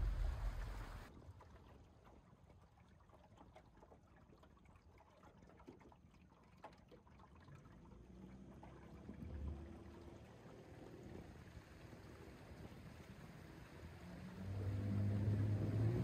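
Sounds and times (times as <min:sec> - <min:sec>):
faint low hum: 0:00.0 - 0:01.1
water lapping against boat hull: 0:00.0 - 0:16.0.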